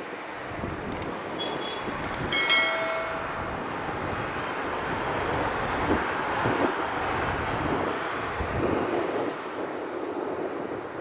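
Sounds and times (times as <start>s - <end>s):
distant jet engine roar: 0.0s - 11.0s
wind on microphone: 0.4s - 11.0s
short ringing chime: 2.3s - 3.5s.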